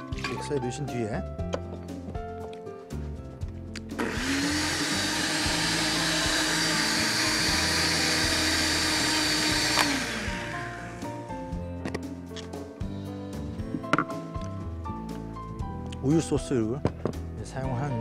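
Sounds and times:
blender motor whizzing: 3.9s - 11.1s
blender switch click: 9.2s - 10.1s.

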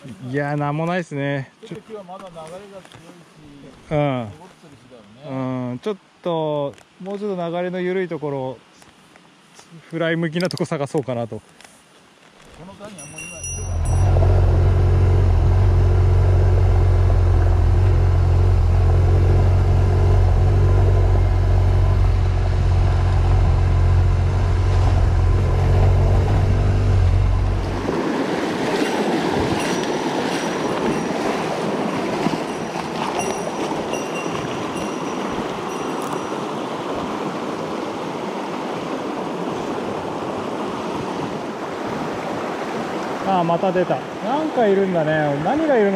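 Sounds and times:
river rushing: 12.7s - 45.9s
motorcycle engine cruising: 13.6s - 28.0s.

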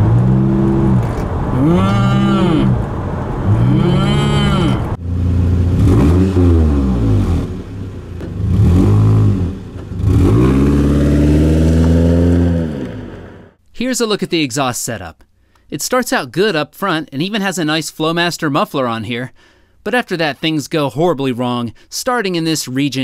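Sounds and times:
truck engine accelerating: 0.0s - 13.6s.

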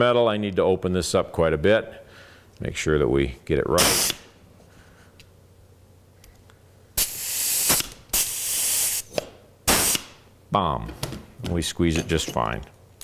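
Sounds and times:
compressed air hissing: 3.8s - 4.3s, 7.0s - 10.2s.

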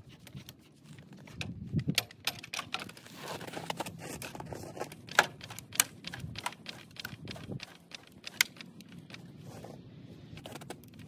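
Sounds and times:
metal clicks and knocks: 1.4s - 3.0s.

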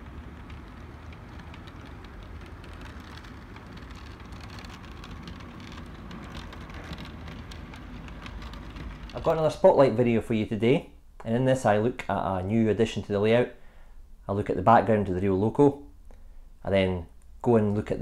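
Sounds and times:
model train motor rumble: 0.0s - 9.7s
wheels clicking over rail joints: 0.0s - 10.2s.

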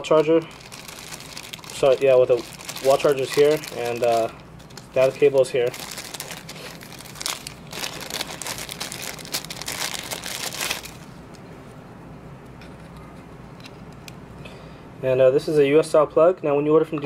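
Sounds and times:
plastic bag crinkling: 0.0s - 11.2s.

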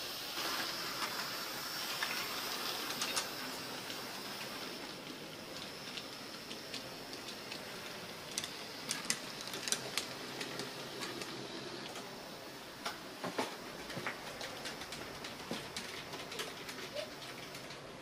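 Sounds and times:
model tram whir: 0.0s - 18.0s
wheels clicking over rail joints: 0.4s - 12.1s, 12.8s - 18.0s.

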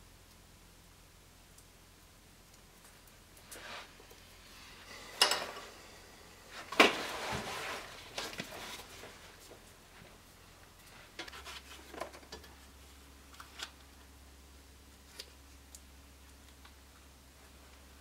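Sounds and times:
paper rustling: 6.5s - 9.7s.

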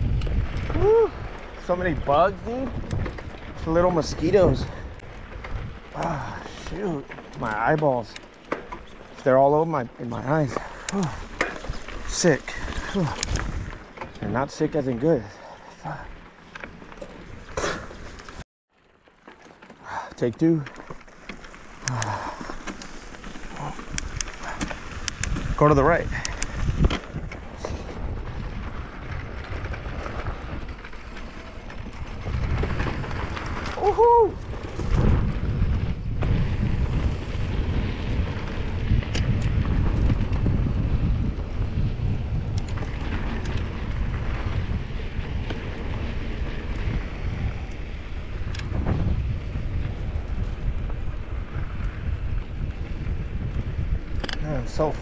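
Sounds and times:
wind rushing over microphone: 0.0s - 16.1s, 21.8s - 55.0s
mountain bike rattling on dirt trail: 0.0s - 55.0s
person whooping: 0.7s - 1.2s, 33.8s - 34.4s.

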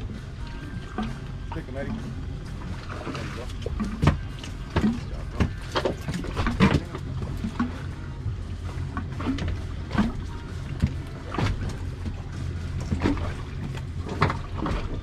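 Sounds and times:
outboard motor running: 0.0s - 15.0s
sharp knocks on boat: 2.8s - 7.8s, 8.9s - 12.2s, 12.8s - 15.0s.

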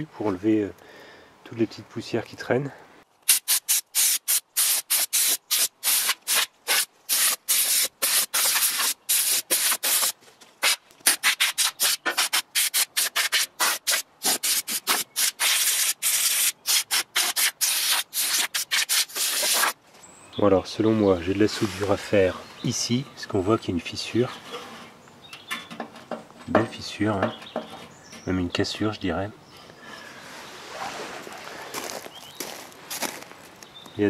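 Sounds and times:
air blow gun blasts: 3.3s - 19.8s.

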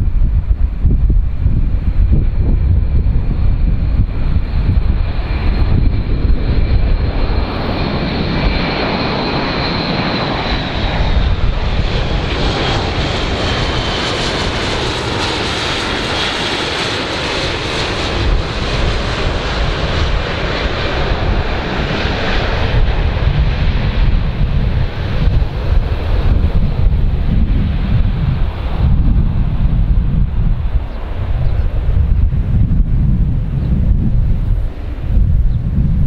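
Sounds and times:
wind rumble on microphone: 0.0s - 36.0s
propeller aircraft droning past: 0.1s - 36.0s.

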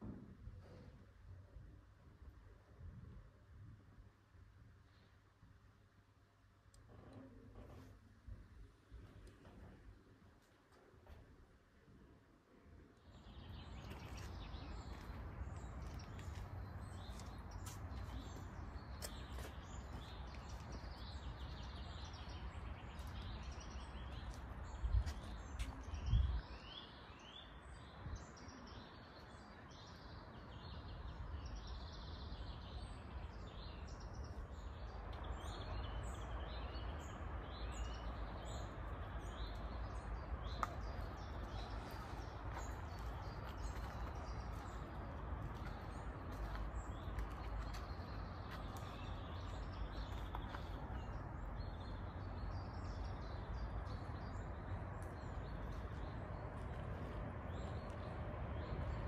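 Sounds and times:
songbirds chirping: 0.0s - 59.0s
low outdoor rumble: 32.6s - 59.0s.

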